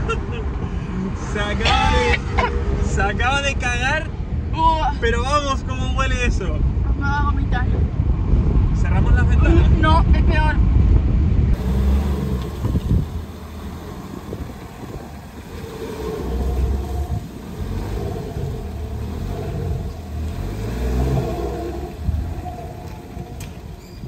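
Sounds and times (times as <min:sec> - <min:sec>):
car engine running: 0:01.2 - 0:04.5, 0:11.5 - 0:24.0.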